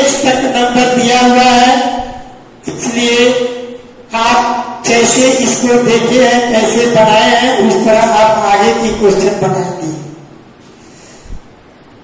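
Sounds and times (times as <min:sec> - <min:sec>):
room hiss: 0:00.0 - 0:12.0.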